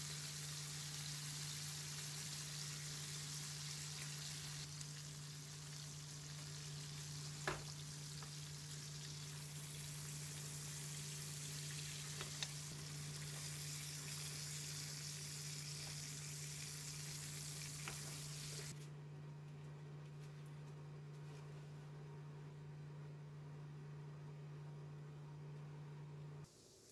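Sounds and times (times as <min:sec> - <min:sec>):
steaks sizzling in a frying pan: 0:00.0 - 0:18.7.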